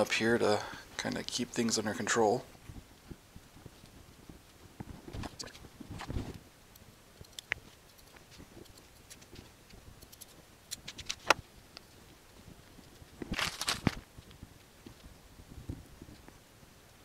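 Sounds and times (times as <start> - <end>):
cloth rustling: 13.0 - 14.0.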